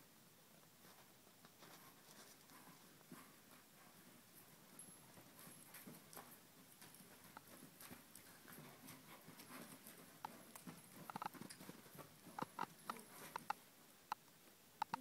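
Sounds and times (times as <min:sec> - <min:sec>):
horse hoofbeats on dirt: 0:01.5 - 0:13.7.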